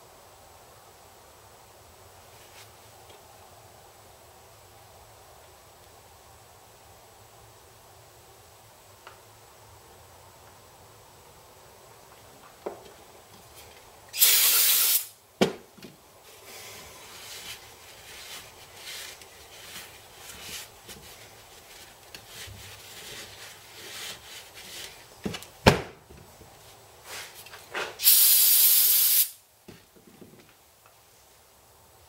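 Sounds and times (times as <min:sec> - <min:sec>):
aerosol spray can hissing: 0:14.2 - 0:15.2, 0:28.0 - 0:29.4
rag wiping and rustling: 0:16.2 - 0:25.5, 0:26.5 - 0:28.0.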